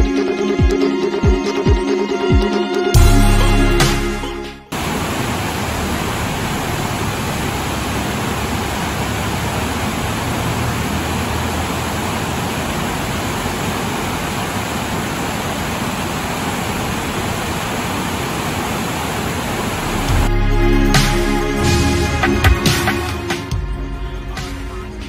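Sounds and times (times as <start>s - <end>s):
whitewater rushing over boulders: 4.7s - 20.3s.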